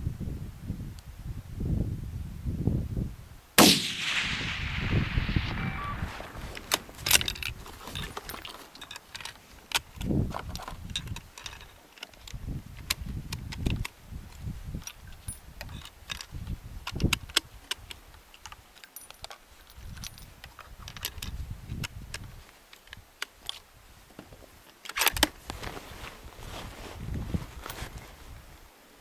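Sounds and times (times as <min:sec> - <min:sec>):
wind rumbling on microphone: 0:00.0 - 0:18.2, 0:19.8 - 0:23.1, 0:25.1 - 0:28.7
rifle metallic clicks and handling: 0:06.3 - 0:23.7, 0:24.6 - 0:25.4.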